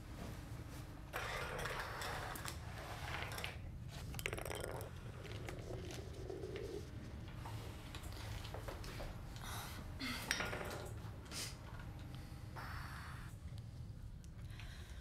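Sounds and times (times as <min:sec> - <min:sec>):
glass rolling on wooden floor: 0:03.0 - 0:05.5
steady low hum: 0:03.6 - 0:10.3.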